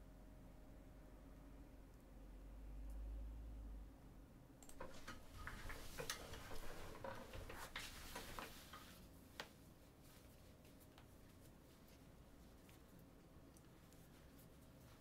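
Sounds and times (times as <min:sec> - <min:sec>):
light clicks and taps: 0:04.6 - 0:09.6.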